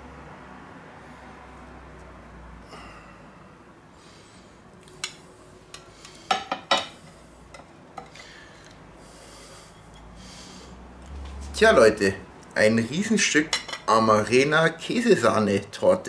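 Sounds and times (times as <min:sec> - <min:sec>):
cake server clinking on plates: 0:06.3 - 0:07.0.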